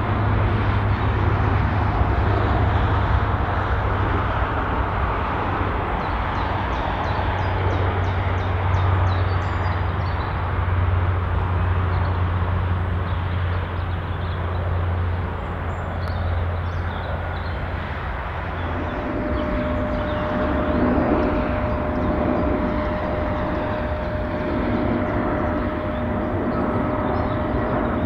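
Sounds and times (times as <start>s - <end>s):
distant turboprop airliner drone: 0.0s - 28.0s.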